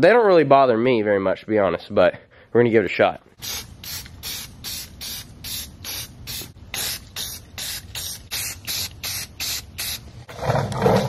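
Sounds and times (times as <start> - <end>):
spray paint bursts: 3.4 - 10.1.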